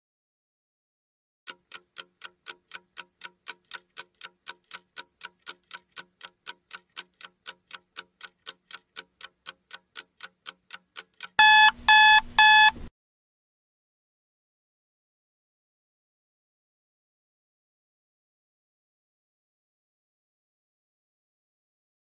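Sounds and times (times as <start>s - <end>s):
clock-like ticking: 1.5s - 12.8s
loud electronic beeps: 11.4s - 12.8s.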